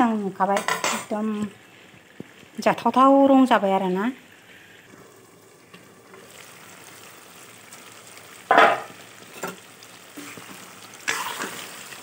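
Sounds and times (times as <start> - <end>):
curry sizzling in a pan: 0.0 - 12.0
metal lid clattering: 8.5 - 9.6.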